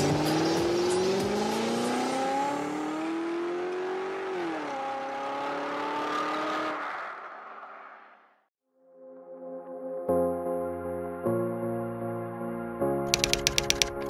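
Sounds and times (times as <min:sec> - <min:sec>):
car engine accelerating: 0:00.0 - 0:07.8.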